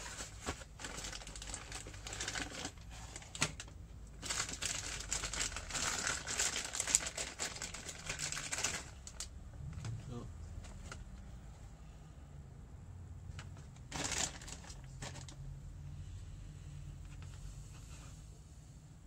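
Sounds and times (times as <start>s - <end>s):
plastic bag crinkling: 0.0s - 10.0s, 13.3s - 15.4s.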